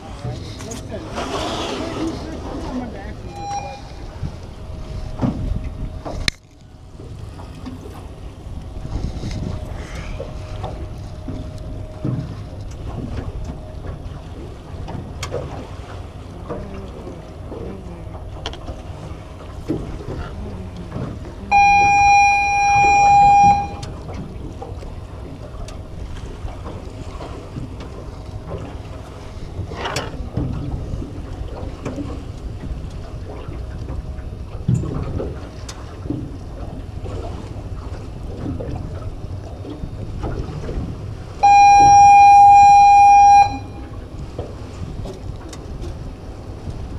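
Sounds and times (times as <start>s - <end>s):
wind and water around boat: 0.0s - 46.9s
loud steady tone: 3.3s - 4.9s, 21.4s - 24.1s, 41.4s - 44.1s.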